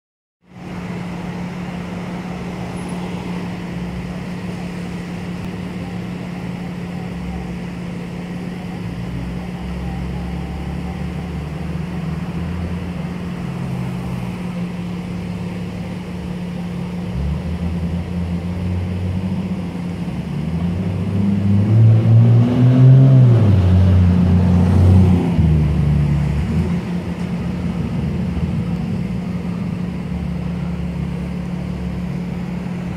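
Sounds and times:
road traffic rumbling: 0:00.4 - 0:32.9.

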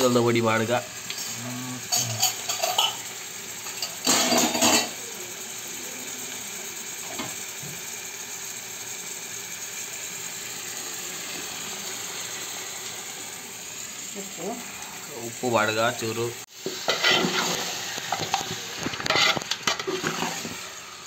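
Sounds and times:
food sizzling in a pan: 0:00.0 - 0:21.0
metal spoon clattering on pan: 0:01.9 - 0:03.0.

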